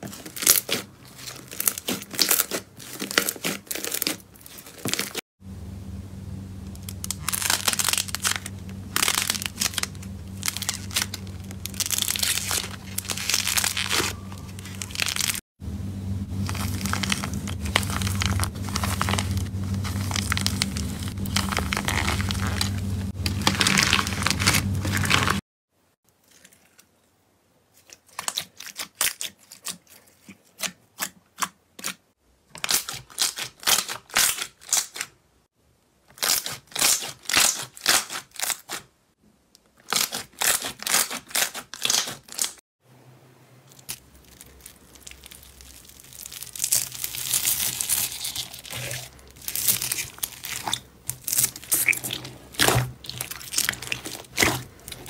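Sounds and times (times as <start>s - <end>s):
crunchy slime crackling and tearing: 0.0s - 5.2s, 6.7s - 15.4s, 16.4s - 25.4s, 27.8s - 35.2s, 36.1s - 38.9s, 39.8s - 42.6s, 43.7s - 55.0s
steady low hum: 5.4s - 25.4s.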